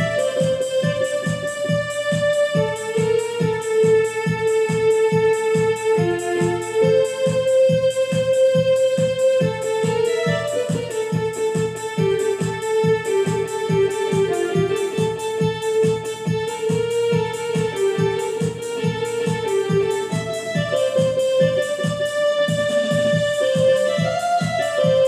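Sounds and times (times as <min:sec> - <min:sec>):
electronic keyboard melody: 0:00.0 - 0:25.0
steady beat: 0:00.0 - 0:25.0.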